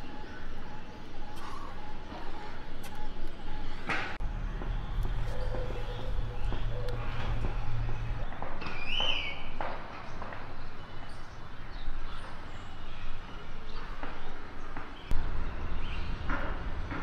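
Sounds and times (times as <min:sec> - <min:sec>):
low hum: 0:00.0 - 0:08.5
bird chirps: 0:00.0 - 0:16.2.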